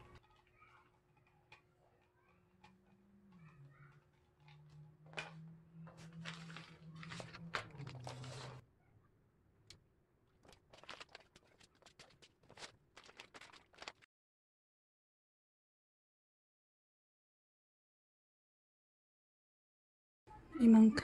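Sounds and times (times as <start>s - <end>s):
plastic rustling: 0.0s - 8.6s, 10.3s - 14.1s.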